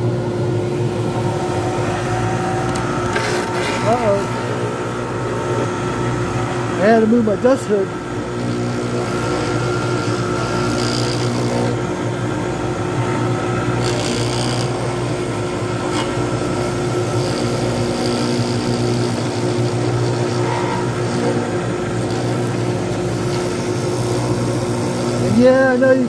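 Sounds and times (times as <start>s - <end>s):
wood lathe humming: 0.0s - 26.0s
turning tool cutting resin: 1.8s - 26.0s.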